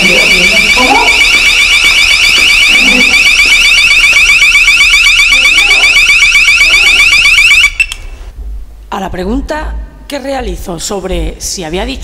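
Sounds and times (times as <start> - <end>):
electronic alarm siren chirping: 0.0 - 8.1.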